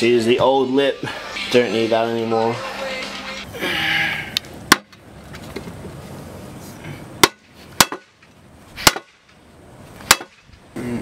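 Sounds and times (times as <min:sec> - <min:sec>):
hammer striking metal wheel: 0:07.2 - 0:08.1, 0:08.8 - 0:09.2, 0:10.1 - 0:10.4.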